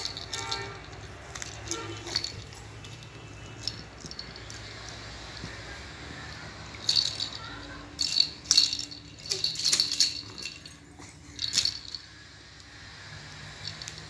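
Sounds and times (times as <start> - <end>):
toy rattle shaking: 0.0 - 12.2, 13.3 - 14.0.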